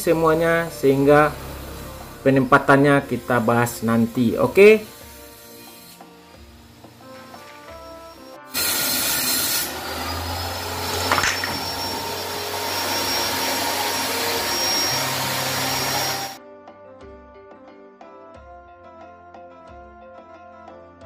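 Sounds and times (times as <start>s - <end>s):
background music: 0.0s - 21.0s
power saw cutting plywood: 4.5s - 7.4s, 8.5s - 16.4s.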